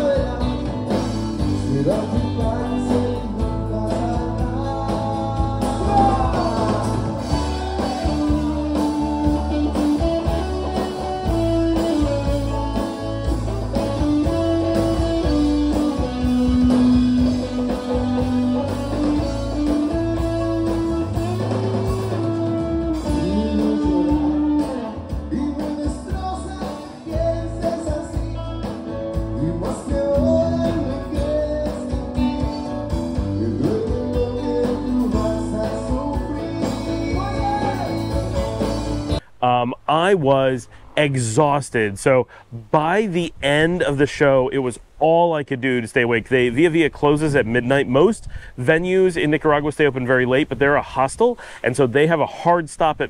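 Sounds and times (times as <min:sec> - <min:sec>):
person singing: 0:00.0 - 0:13.0, 0:14.2 - 0:39.2
bass guitar: 0:00.0 - 0:44.1
acoustic and electric guitars: 0:00.0 - 0:53.0
drums: 0:00.0 - 0:53.0.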